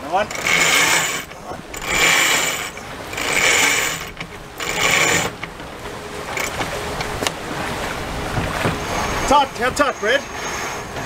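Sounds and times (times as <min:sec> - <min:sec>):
rope ratcheting through deck hardware: 0:00.0 - 0:05.7, 0:06.3 - 0:06.8.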